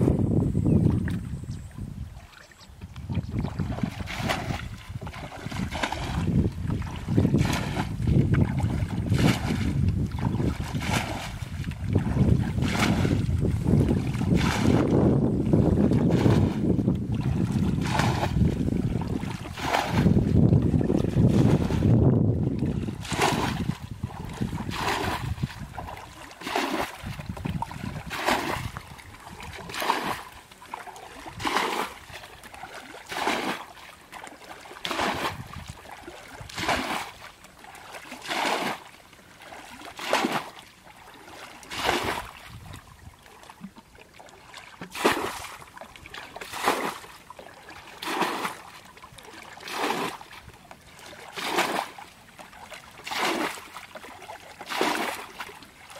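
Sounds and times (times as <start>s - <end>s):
wind on microphone: 0.0s - 30.3s, 34.9s - 37.1s, 41.7s - 43.7s
water splashing from bucket: 2.3s - 55.9s.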